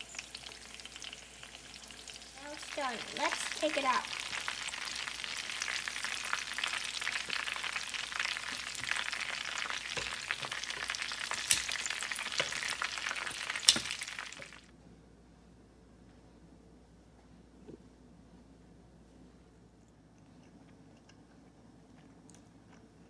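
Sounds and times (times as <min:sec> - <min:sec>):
food sizzling in hot oil: 0:00.0 - 0:14.7.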